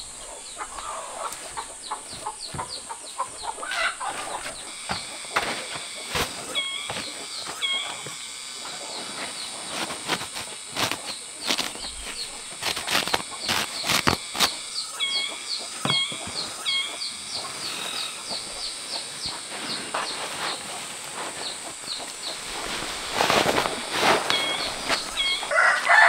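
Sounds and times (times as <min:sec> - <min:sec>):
steady high whine: 0:00.0 - 0:26.0
plastic sack rustling and flapping: 0:09.6 - 0:14.6, 0:22.1 - 0:25.5.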